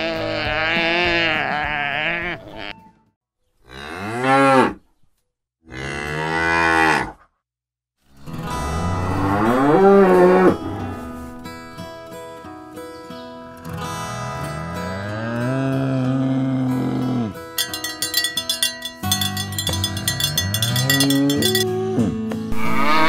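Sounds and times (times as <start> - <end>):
cattle mooing: 8.6 - 11.0, 22.5 - 23.0.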